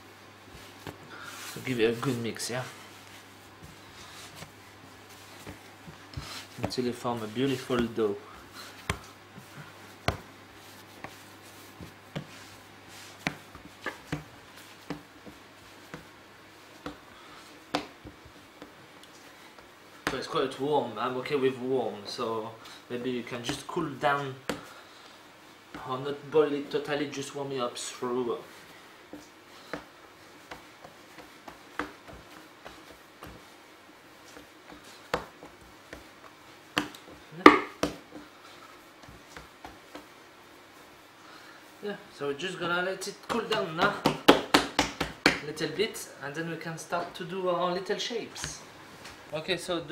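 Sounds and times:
hands kneading dough on wood: 0.1 - 49.9
dough knocking on wooden worktop: 36.8 - 38.0, 43.8 - 45.4.

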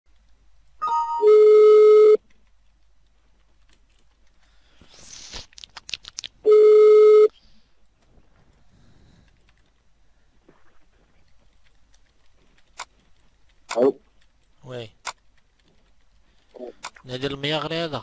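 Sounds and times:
telephone ringback tone: 0.8 - 2.2, 6.5 - 7.3
rustling: 7.4 - 18.0.

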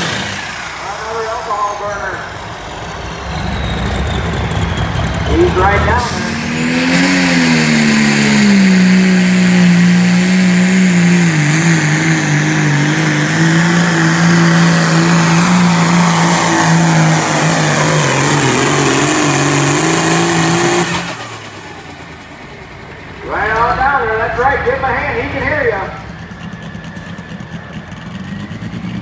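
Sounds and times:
tractor engine running under load: 0.0 - 29.0.

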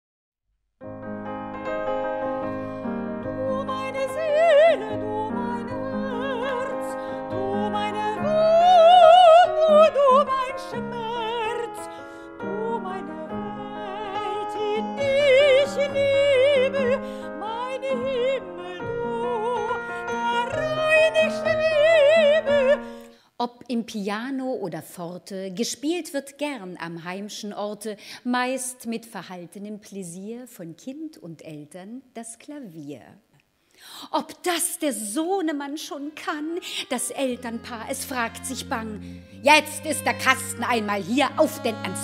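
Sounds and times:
piano accompaniment: 0.8 - 23.1, 35.8 - 42.0
soprano operatic singing: 3.2 - 23.1, 34.1 - 42.0.

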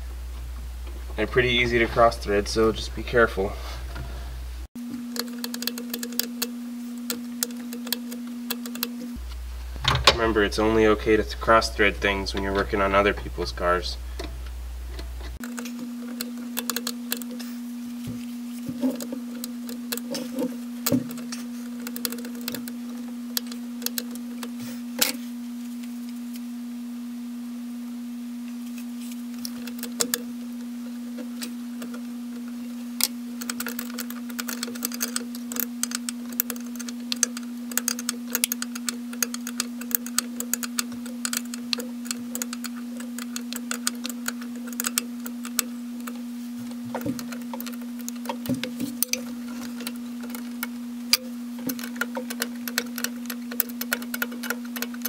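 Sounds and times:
steady hum: 0.0 - 55.0
wrench clicking on metal nuts: 33.4 - 46.2, 47.1 - 55.0.

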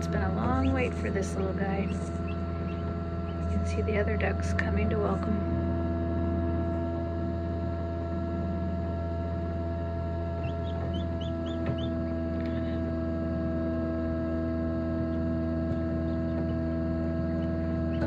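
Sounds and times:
incubator fan hum: 0.0 - 18.0
duckling peeping: 1.8 - 3.8, 10.4 - 12.6.

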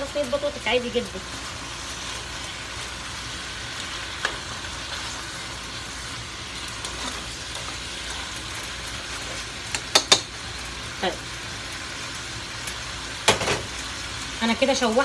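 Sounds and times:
meat sizzling in a pot: 0.0 - 15.0
spoon knocking against pot: 9.7 - 10.3.

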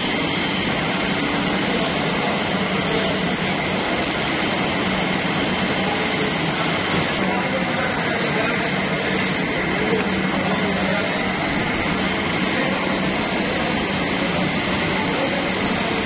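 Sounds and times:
factory machinery humming: 0.0 - 16.0.

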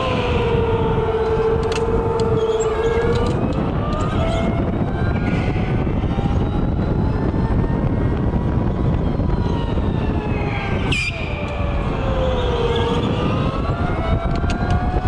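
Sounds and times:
high squeal: 0.0 - 4.4
electric go-kart motor whining: 0.0 - 4.5
wind rush on microphone: 0.0 - 15.0.

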